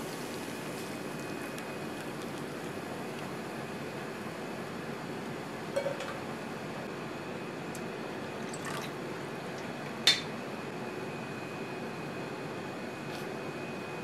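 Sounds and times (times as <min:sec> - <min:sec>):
glass clink: 0:05.8 - 0:06.2.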